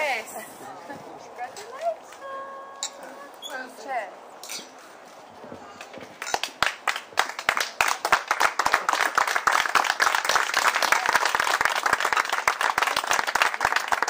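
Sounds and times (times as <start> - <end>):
crowd applauding: 6.2 - 14.0.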